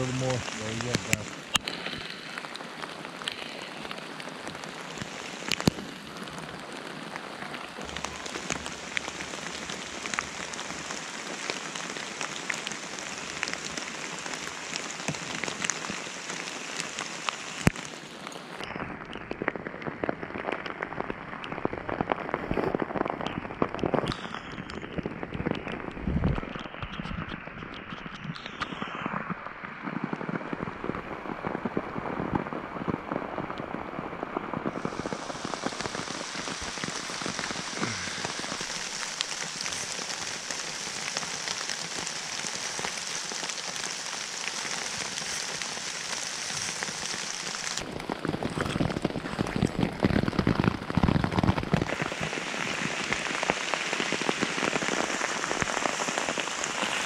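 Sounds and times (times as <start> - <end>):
raindrops ticking near microphone: 0.0 - 57.0
steady rain in woods: 0.0 - 57.0.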